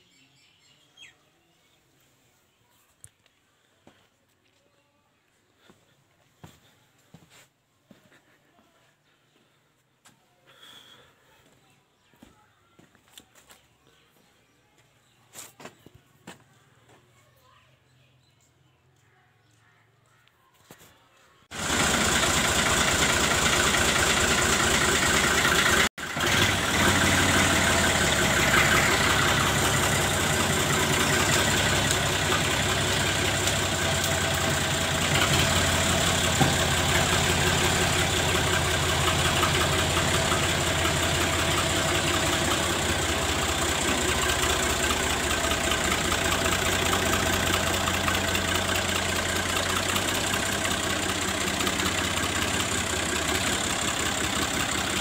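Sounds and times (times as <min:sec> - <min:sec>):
diesel tractor engine idling: 0:21.5 - 0:55.0.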